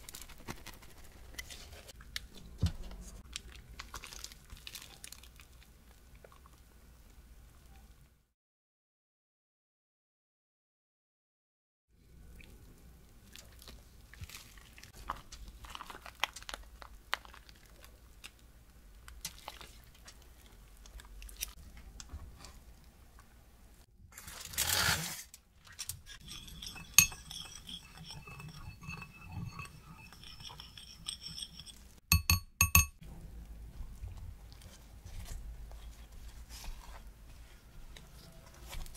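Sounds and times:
ceramic bowl clinks: 0:26.2 - 0:33.0
rustle of plastic: 0:34.1 - 0:38.9.

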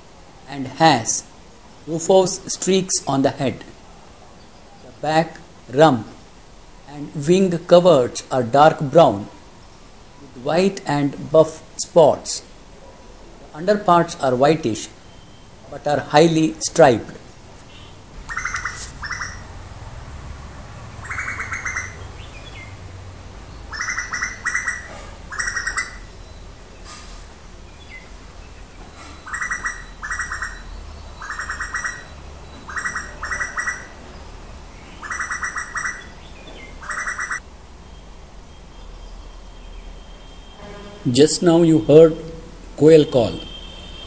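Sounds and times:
bird calling in pulsed calls: 0:17.8 - 0:19.6, 0:20.9 - 0:22.9, 0:23.5 - 0:26.6, 0:27.6 - 0:37.4.

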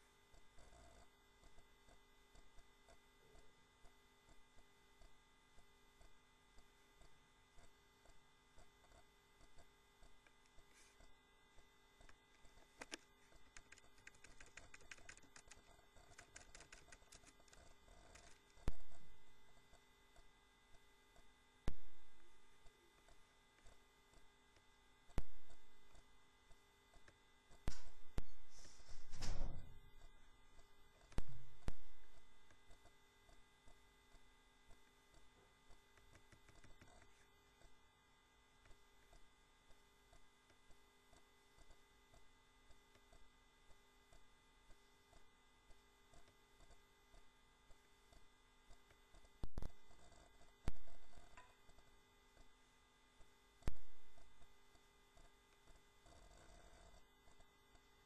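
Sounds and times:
low electrical hum: 0:00.0 - 0:58.0
typing on computer keyboard: 0:12.8 - 0:18.5
sharp clicks: 0:12.8 - 0:18.6.

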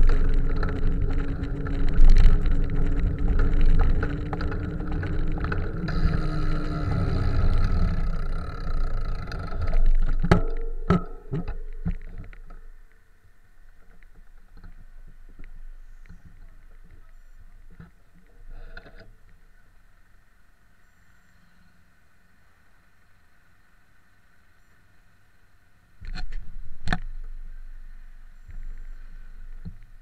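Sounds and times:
wind and road noise: 0:00.0 - 0:20.8.

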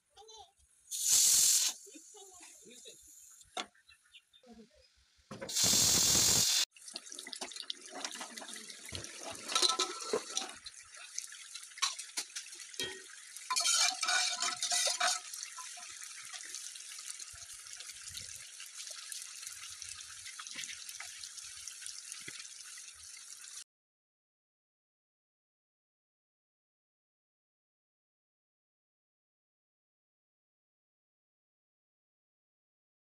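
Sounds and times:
lentils bubbling in a pot: 0:05.5 - 0:23.6
liquid sloshing: 0:06.8 - 0:11.2, 0:11.8 - 0:16.4.

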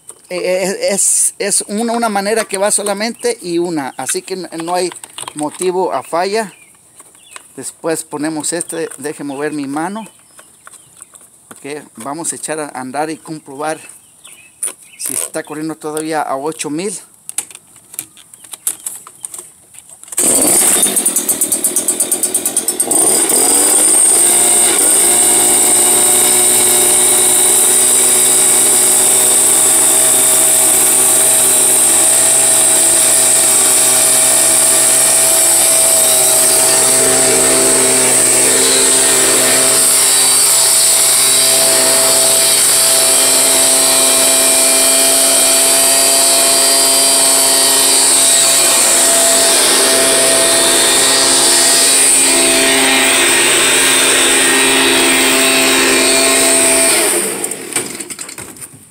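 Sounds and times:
leaf blower engine revving: 0:20.2 - 0:58.2.

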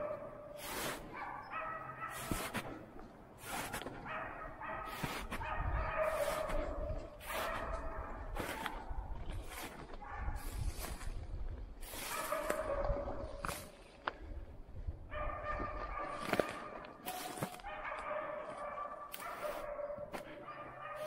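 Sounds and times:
dogs barking: 0:00.0 - 0:02.8, 0:03.5 - 0:09.1, 0:10.0 - 0:10.5, 0:12.0 - 0:13.3, 0:15.1 - 0:21.0
footsteps crunching through snow: 0:00.6 - 0:01.3, 0:02.0 - 0:02.8, 0:03.4 - 0:04.2, 0:04.8 - 0:14.0, 0:15.5 - 0:20.4.

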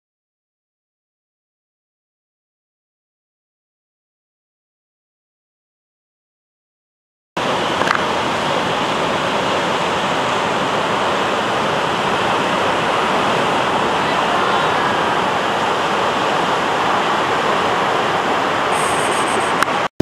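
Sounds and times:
ocean surf breaking on rocks: 0:07.4 - 0:19.9.

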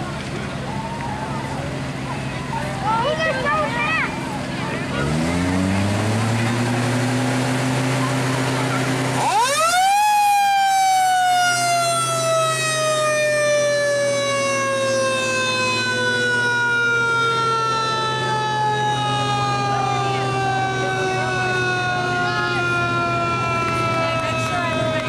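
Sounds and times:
fire truck siren: 0:00.0 - 0:25.0
low engine hum: 0:00.0 - 0:25.0.

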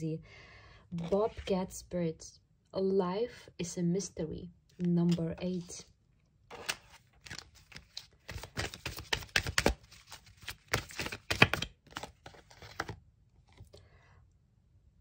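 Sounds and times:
cards being shuffled: 0:01.0 - 0:01.5, 0:04.8 - 0:05.7, 0:06.5 - 0:13.6.

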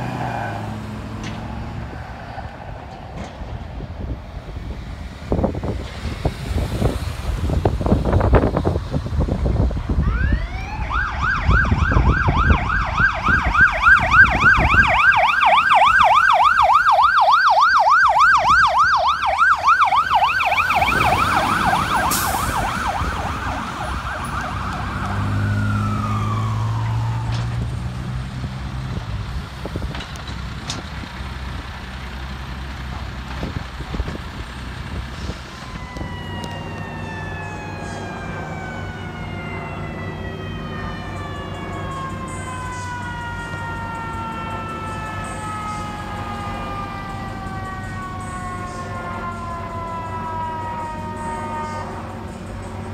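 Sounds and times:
fire truck siren yelping: 0:00.0 - 0:05.9, 0:06.5 - 0:29.1, 0:33.3 - 0:52.9
truck engine rumbling: 0:00.0 - 0:52.9.

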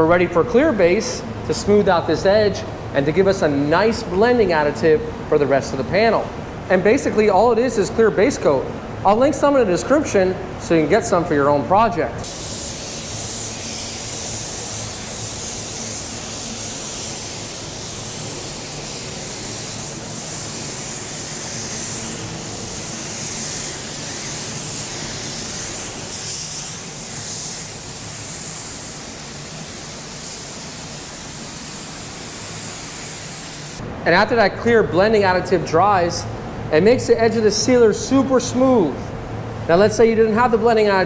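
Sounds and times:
spray gun hissing: 0:12.2 - 0:33.8.

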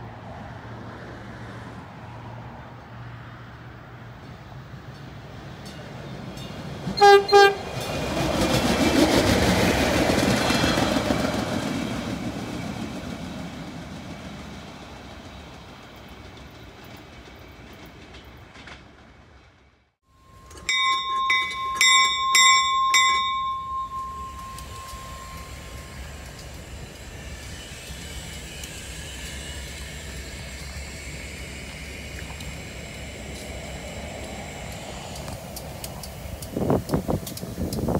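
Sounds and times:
diesel railcar passing: 0:00.0 - 0:37.9
diesel locomotives idling: 0:20.1 - 0:37.9
hand tapping ringing metal: 0:20.3 - 0:25.7.

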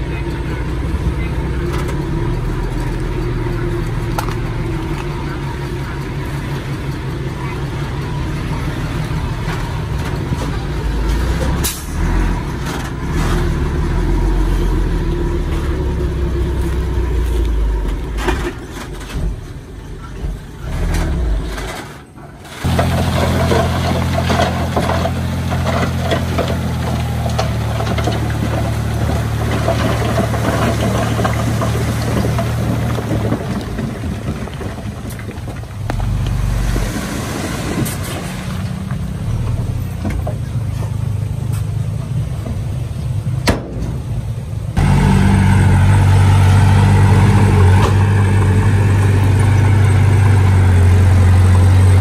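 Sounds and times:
heavy diesel engines under load: 0:00.0 - 0:52.0
low engine drone: 0:42.1 - 0:52.0.

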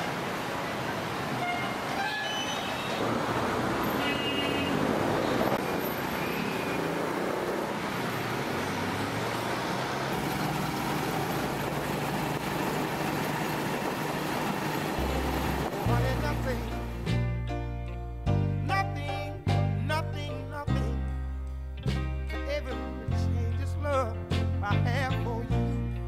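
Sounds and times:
city street traffic: 0:00.0 - 0:26.0
vehicle horns tooting: 0:01.3 - 0:03.2, 0:03.8 - 0:07.0
low engine hum: 0:07.0 - 0:26.0.

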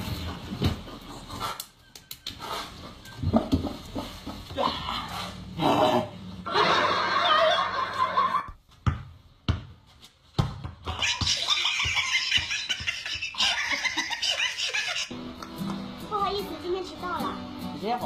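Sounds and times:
people laughing: 0:06.5 - 0:08.5, 0:11.0 - 0:15.1
basketball bouncing on concrete: 0:08.5 - 0:13.4.

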